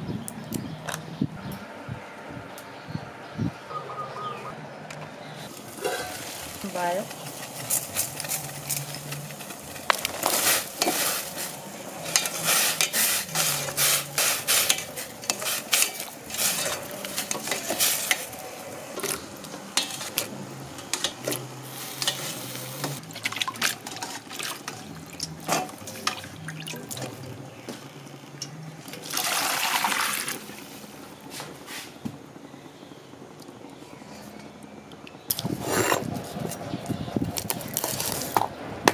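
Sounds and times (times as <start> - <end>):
water splashing in a bowl: 23.0 - 27.1, 29.0 - 30.6
water pouring: 23.0 - 27.2, 28.9 - 30.6.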